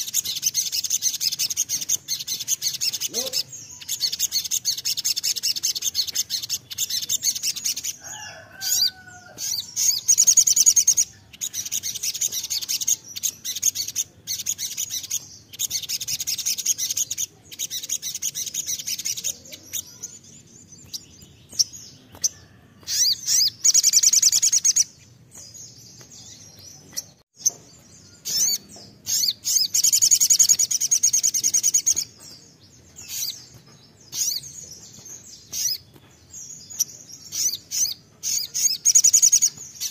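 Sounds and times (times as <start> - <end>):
bird singing trilled phrases: 0.0 - 39.9.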